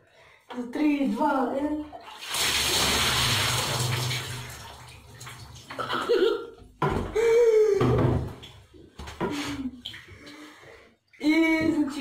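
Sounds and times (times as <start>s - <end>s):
water splashing onto tiled floor: 2.0s - 6.2s.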